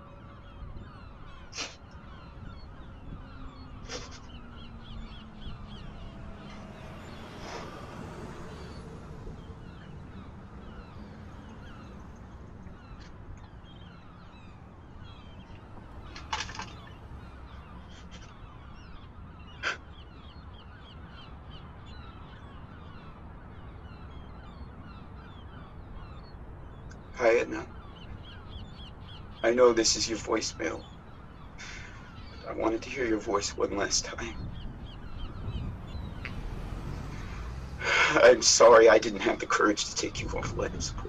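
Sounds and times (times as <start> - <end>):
birds calling: 0.0 - 41.0
short loud bird calls: 0.0 - 41.0.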